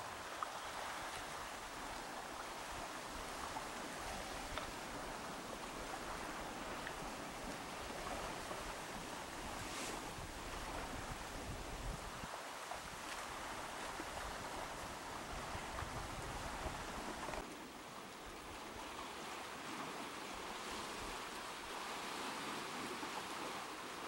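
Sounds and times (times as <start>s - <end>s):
sea water washing against shore: 0.0s - 24.0s
faint ticks: 4.4s - 4.8s.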